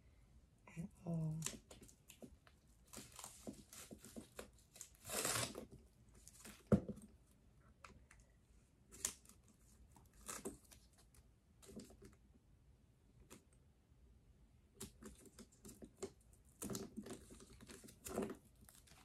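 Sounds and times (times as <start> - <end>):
plastic wrapping crinkling and tearing: 1.4 - 6.7.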